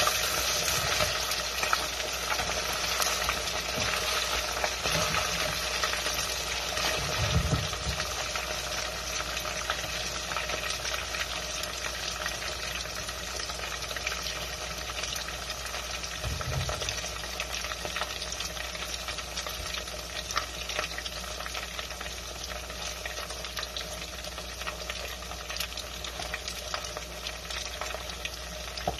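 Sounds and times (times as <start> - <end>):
fish frying in hot oil: 0.0 - 28.9.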